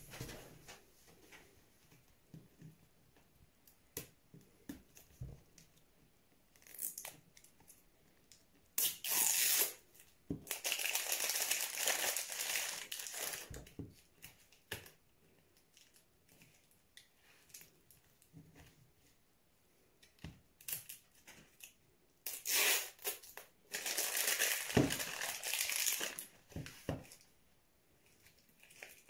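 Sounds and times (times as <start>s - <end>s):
plastic wrapping tearing: 8.8s - 9.8s, 10.4s - 13.5s, 21.6s - 26.3s.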